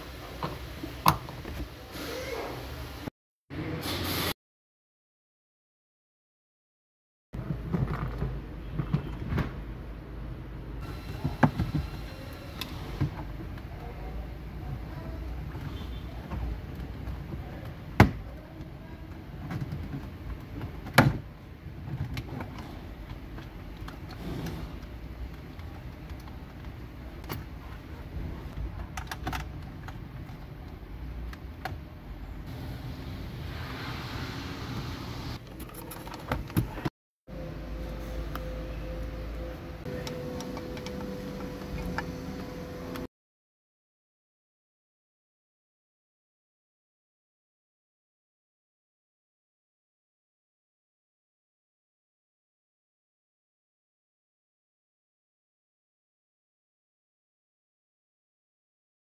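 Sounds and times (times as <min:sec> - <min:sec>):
knocks and clicks handling parts: 0:15.6 - 0:31.8, 0:35.4 - 0:36.9
hiss: 0:32.5 - 0:35.4.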